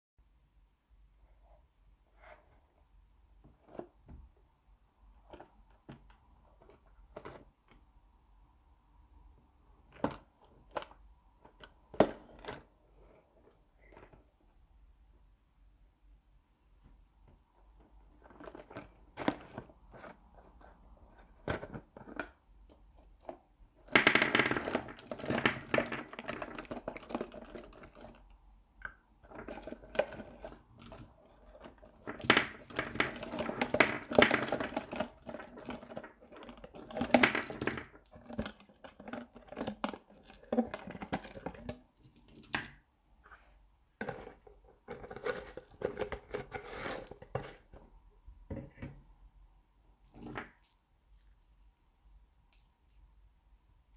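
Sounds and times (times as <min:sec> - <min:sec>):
cellophane crinkling: 0:29.2 - 0:42.7.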